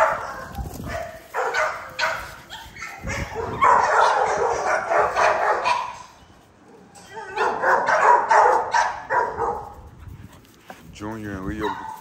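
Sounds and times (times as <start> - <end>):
puppies barking and yipping: 0.0 - 6.2, 7.4 - 10.0, 11.5 - 12.0.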